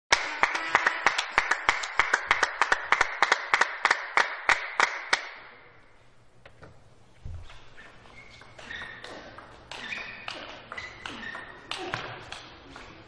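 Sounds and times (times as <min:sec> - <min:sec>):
spectators clapping in unison: 0:00.1 - 0:05.5.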